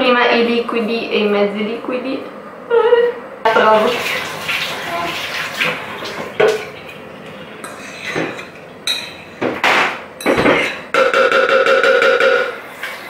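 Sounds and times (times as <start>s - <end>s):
fork scraping and tapping plate: 7.6s - 9.2s.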